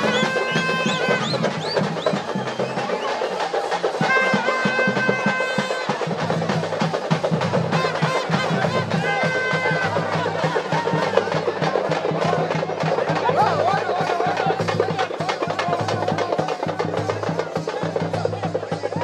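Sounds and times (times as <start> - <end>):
wind instrument high notes: 0.0 - 11.4
fast dense drumming: 0.0 - 19.0.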